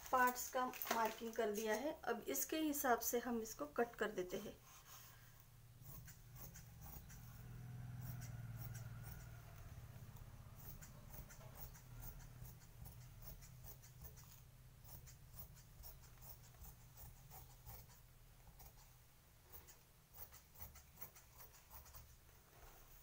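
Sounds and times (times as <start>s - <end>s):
steady low hum: 3.4s - 23.0s
scissors snipping fabric: 5.4s - 18.9s, 19.5s - 22.2s.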